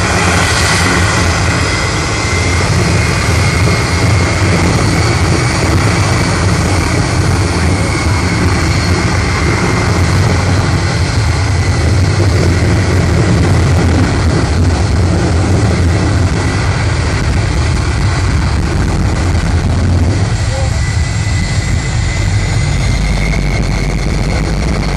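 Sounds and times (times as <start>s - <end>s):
jet engine with afterburner: 0.0s - 24.9s.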